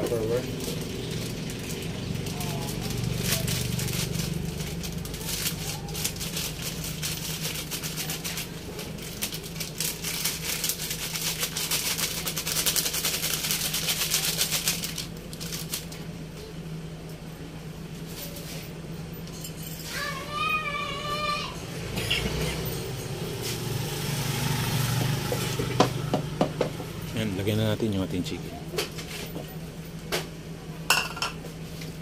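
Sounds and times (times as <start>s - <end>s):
steady low hum: 0.0s - 32.0s
packet crinkling and rattling: 0.6s - 16.0s.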